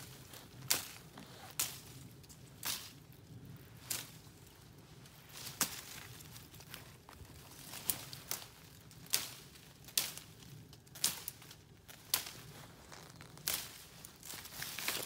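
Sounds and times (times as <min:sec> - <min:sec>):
footsteps crunching dry leaves: 0:05.2 - 0:09.6, 0:11.0 - 0:15.0.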